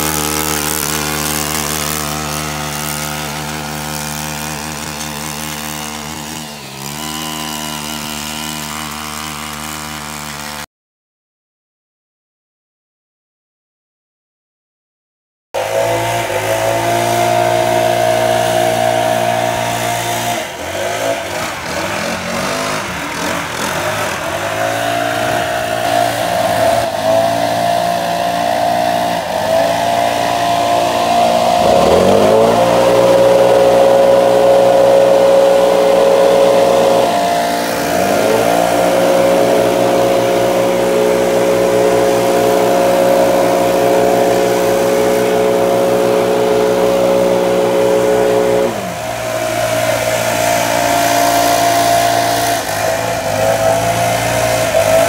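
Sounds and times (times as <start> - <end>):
leaf blower engine running: 0.0 - 10.7, 15.6 - 55.0.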